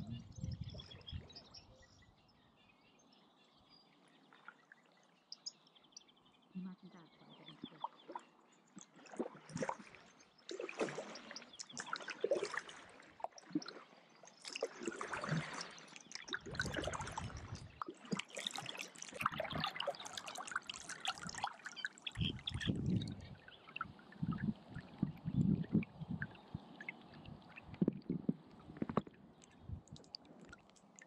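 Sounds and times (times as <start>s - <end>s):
paddle pulling through water: 7.3s - 31.0s
water dripping off paddle: 7.6s - 31.0s.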